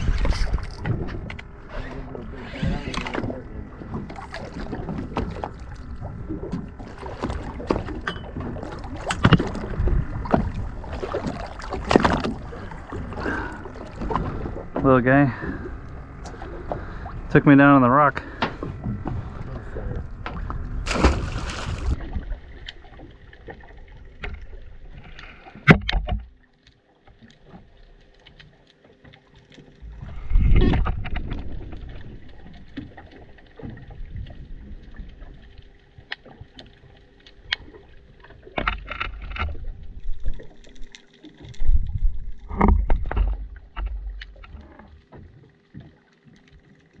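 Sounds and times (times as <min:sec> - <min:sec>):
faint steady hum: 0:00.0 - 0:47.0
underwater rushing water: 0:00.0 - 0:47.0.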